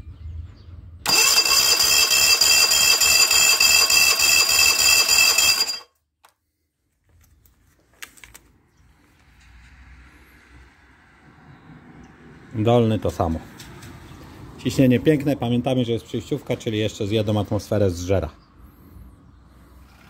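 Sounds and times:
outboard engine cranking: 1.1s - 5.8s.

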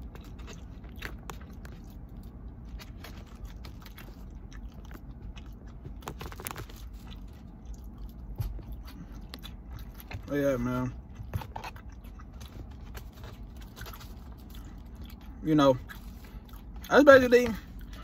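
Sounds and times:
chewing with soft crunches: 0.0s - 18.0s
steady low rumble: 0.0s - 18.0s.

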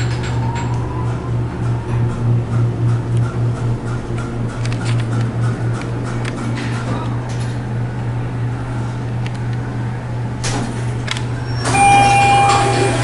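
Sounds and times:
elevator humming: 0.0s - 13.0s
elevator clunks: 10.4s - 13.0s
electronic arrival beep: 11.7s - 13.0s.

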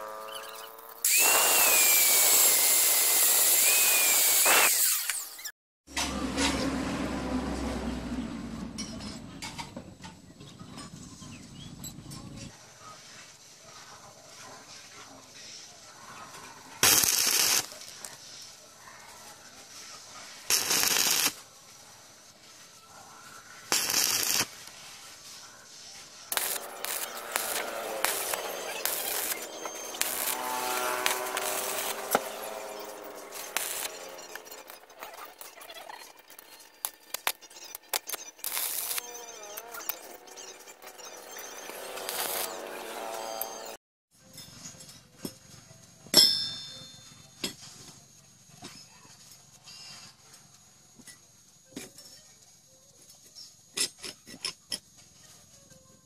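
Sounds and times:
angle grinder cutting steel: 0.0s - 5.5s, 26.3s - 43.8s
welding arc crackling sizzle: 0.0s - 5.5s, 16.8s - 18.2s, 20.4s - 21.4s, 23.7s - 25.4s, 26.2s - 43.8s.

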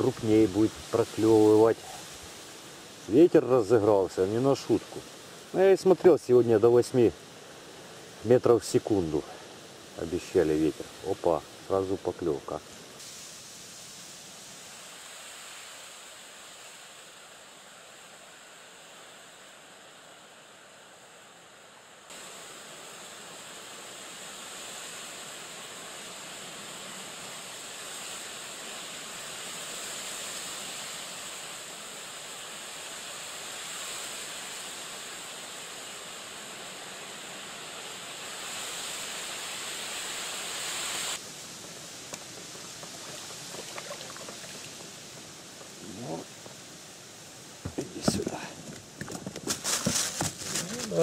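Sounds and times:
steady wind: 0.0s - 51.0s
lake water lapping: 42.3s - 45.2s.

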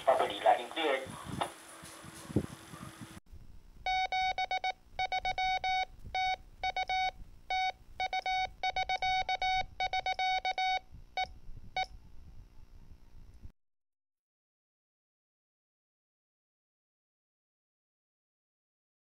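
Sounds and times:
morse code beeping tone: 3.9s - 10.8s.

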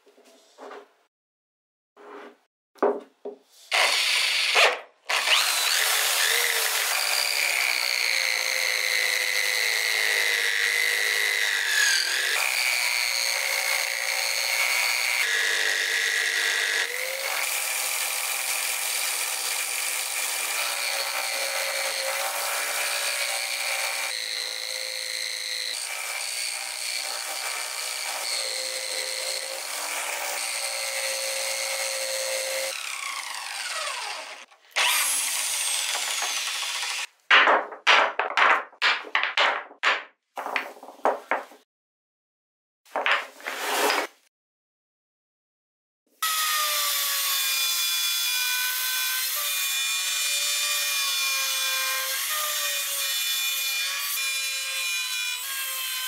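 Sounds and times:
wood being cut and sanded: 3.5s - 39.8s, 43.0s - 44.3s, 46.2s - 56.0s
electric drill whine: 3.7s - 9.7s, 31.1s - 37.1s.

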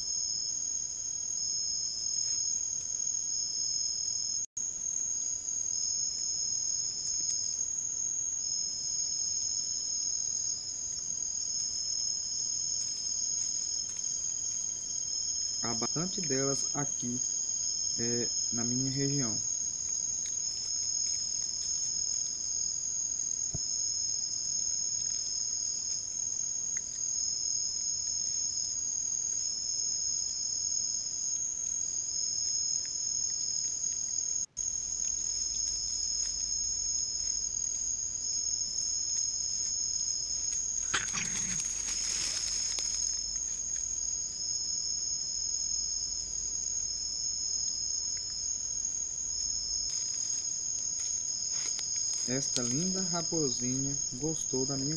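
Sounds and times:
crickets trilling: 0.0s - 54.9s
brief rustling: 40.8s - 43.9s.

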